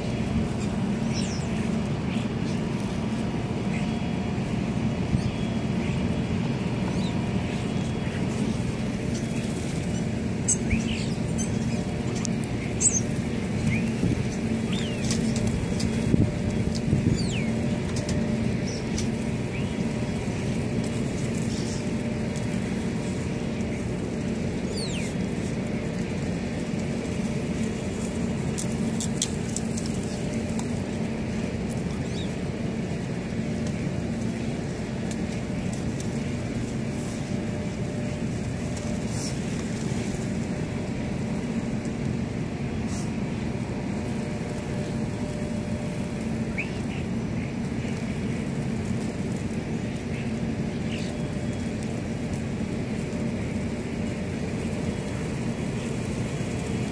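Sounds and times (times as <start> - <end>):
low hum and rumble: 0.0 - 56.9
faint bird calls: 46.3 - 48.5.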